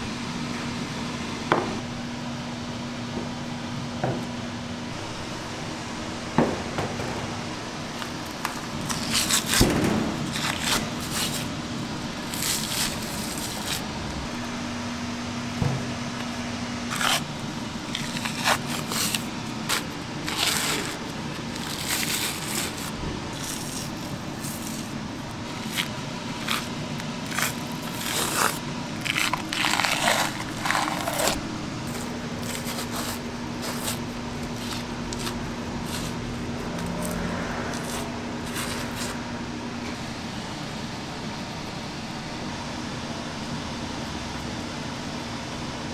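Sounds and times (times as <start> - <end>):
steady background hum: 0.0 - 45.9
knife scraping meat: 8.8 - 11.5, 12.3 - 13.8, 16.9 - 17.3, 17.9 - 39.2.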